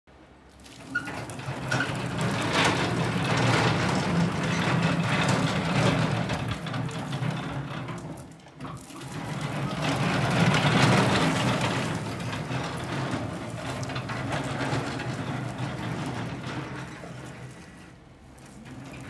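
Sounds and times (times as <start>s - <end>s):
wheels rolling on asphalt: 0.2s - 19.0s.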